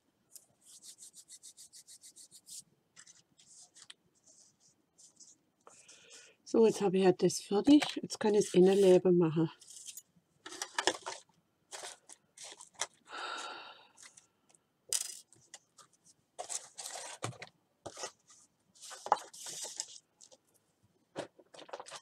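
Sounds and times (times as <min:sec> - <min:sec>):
paper and card rustling: 0:00.6 - 0:05.4, 0:07.7 - 0:13.0, 0:15.0 - 0:20.4, 0:21.2 - 0:22.0.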